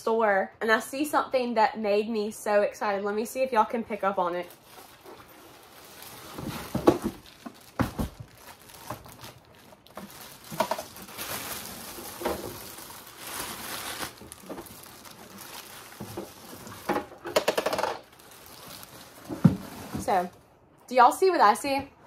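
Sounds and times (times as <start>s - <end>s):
plastic bag crinkling: 4.4s - 20.4s.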